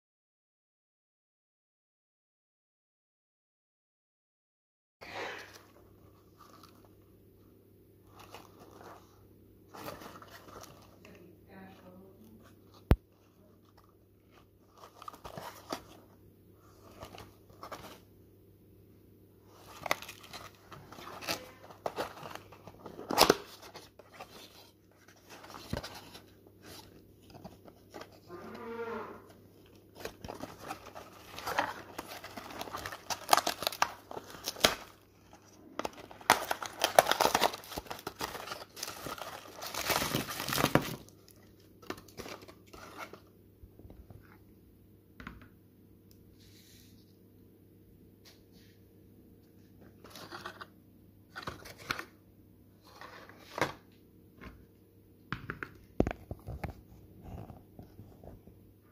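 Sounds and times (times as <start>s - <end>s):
wrapped chocolates crinkling: 8.0s - 18.1s, 19.5s - 28.4s, 29.5s - 43.2s.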